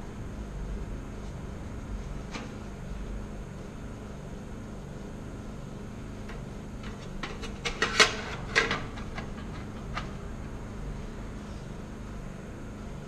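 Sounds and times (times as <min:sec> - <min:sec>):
sheet metal clanks and rattles: 0:06.3 - 0:10.2.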